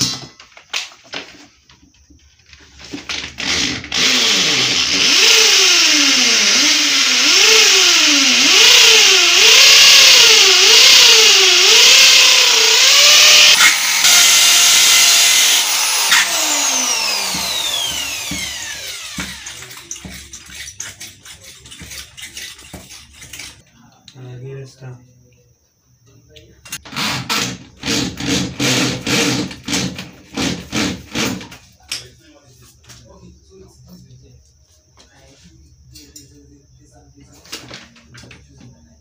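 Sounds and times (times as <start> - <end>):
electric drill boring into wall: 3.0 - 20.1, 26.8 - 31.4.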